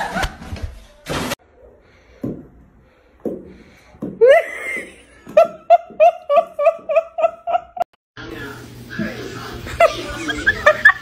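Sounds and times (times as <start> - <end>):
person giggling: 4.2 - 7.9.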